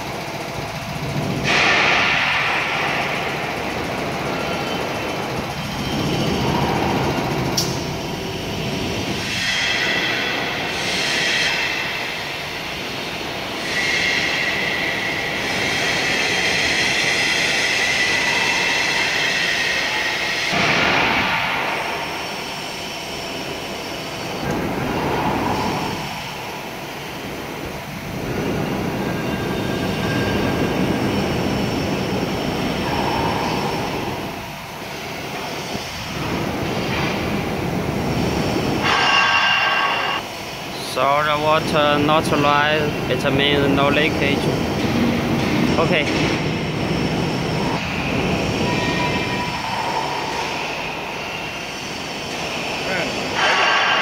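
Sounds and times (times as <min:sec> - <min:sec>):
test bench mechanical noise: 0:00.0 - 0:54.0
hissing and whistling water: 0:09.1 - 0:12.2, 0:13.5 - 0:27.3, 0:28.2 - 0:37.1, 0:38.1 - 0:44.5, 0:47.6 - 0:54.0.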